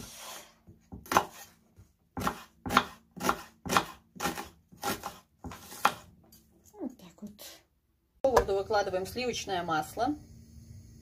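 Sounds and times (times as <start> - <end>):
knife chopping on wooden board: 0.7 - 6.1.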